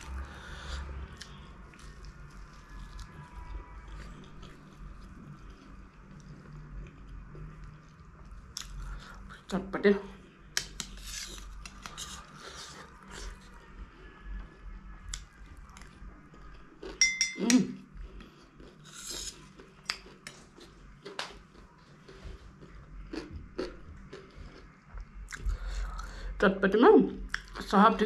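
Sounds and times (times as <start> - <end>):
crunching and chewing snack: 0.0 - 9.3, 18.0 - 26.2
spoon clinking on plate: 17.0 - 17.7.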